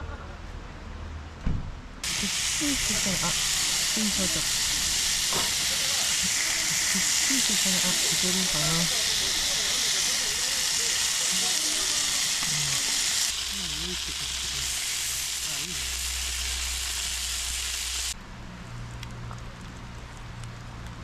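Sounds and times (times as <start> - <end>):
meat sizzling as it fries: 2.0 - 18.2.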